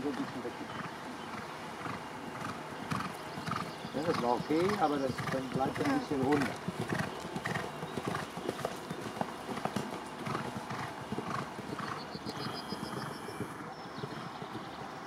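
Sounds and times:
horse hoofbeats cantering: 0.0 - 15.0
high rapid chirping: 11.3 - 13.6.

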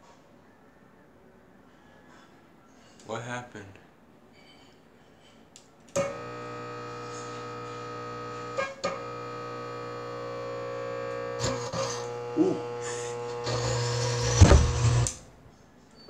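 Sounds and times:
mains hum: 0.0 - 16.0
lamp ballast buzzing: 5.9 - 15.5
sharp electrical crackles: 6.0 - 15.3.

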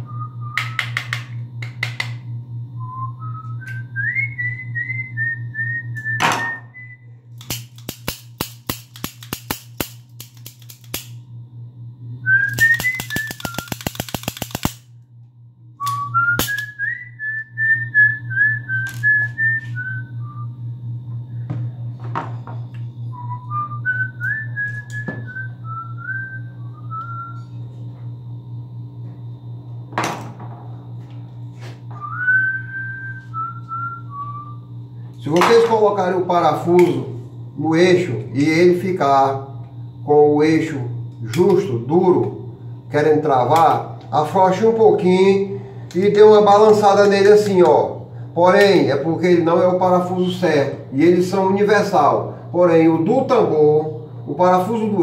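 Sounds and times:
person whistling a tune: 0.0 - 1.0, 2.8 - 7.0, 12.2 - 14.0, 15.8 - 20.6, 23.1 - 27.6, 31.9 - 34.6
low hum: 0.0 - 55.0
run of clicks: 12.5 - 14.8.

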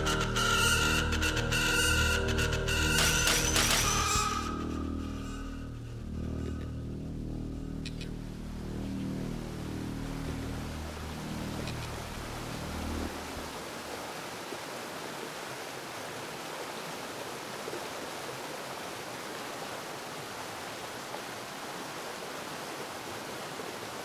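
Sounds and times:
deep low sound: 0.0 - 13.5.

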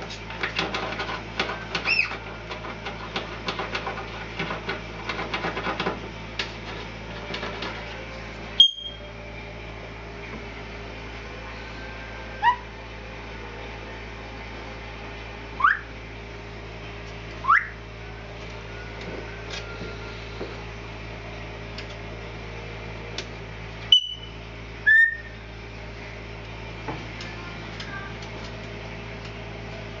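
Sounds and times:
parrot whistles and calls: 8.6 - 9.1, 12.4 - 12.6, 15.6 - 15.9, 17.4 - 17.8, 23.9 - 25.4.

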